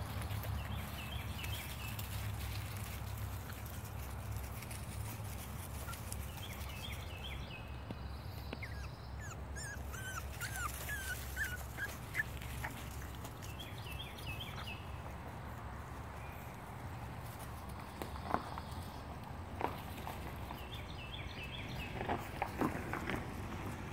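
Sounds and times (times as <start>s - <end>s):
puppies yipping and whimpering: 8.6s - 13.2s.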